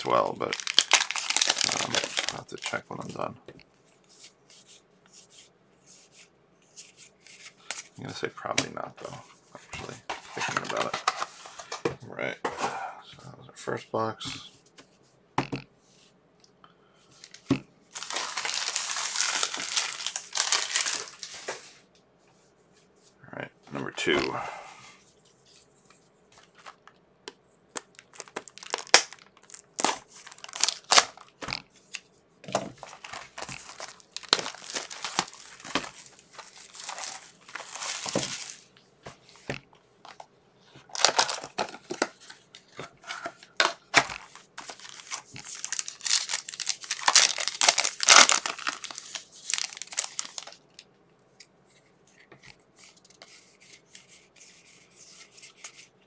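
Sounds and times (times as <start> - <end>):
plastic wrapping crackling: 0.0 - 2.8, 17.2 - 21.5, 27.7 - 32.0, 32.7 - 38.7, 40.8 - 42.3, 43.6 - 50.8.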